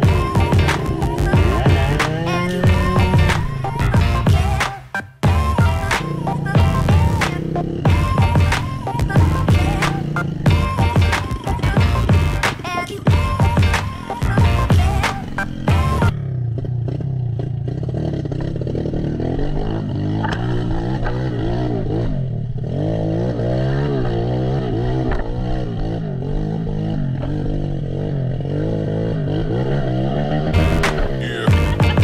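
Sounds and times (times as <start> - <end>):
background music: 0.0 - 16.1, 30.6 - 32.0
dirt bike engine revving: 0.0 - 32.0.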